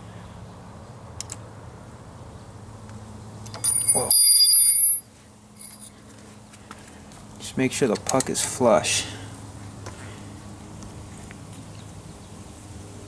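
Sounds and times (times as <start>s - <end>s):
bright metal ring: 3.6s - 6.0s
light metallic clicks: 7.9s - 8.6s.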